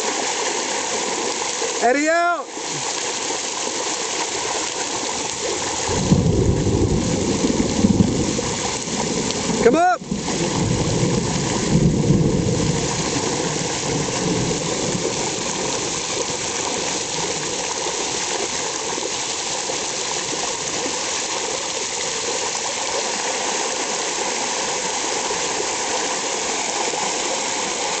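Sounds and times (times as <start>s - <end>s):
floodwater streaming along street: 0.0s - 28.0s
heavy rain falling: 0.0s - 28.0s.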